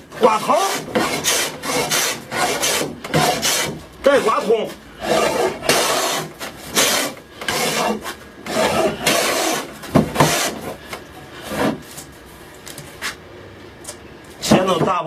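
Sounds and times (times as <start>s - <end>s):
hand plane shaving wood: 0.2s - 10.8s, 11.4s - 11.8s.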